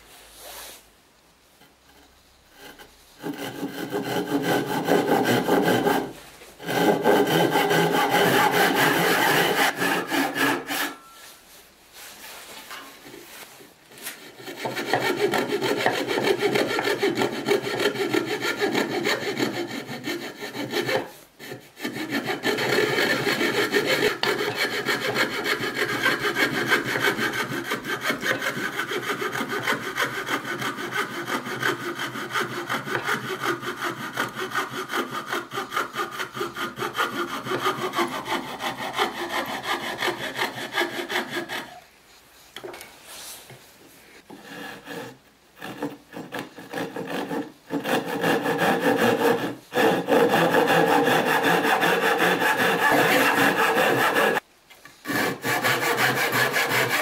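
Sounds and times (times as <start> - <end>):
hand saw cutting wood: 1.9 - 11.2, 13.9 - 41.8, 44.2 - 54.4, 55.0 - 57.0.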